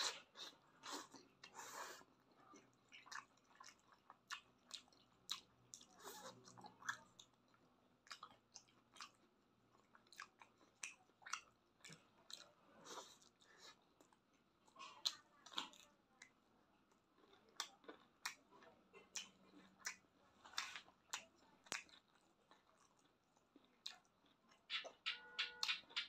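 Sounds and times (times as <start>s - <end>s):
person chewing with lip smacks: 2.6s - 9.2s, 9.9s - 16.4s, 17.2s - 26.0s.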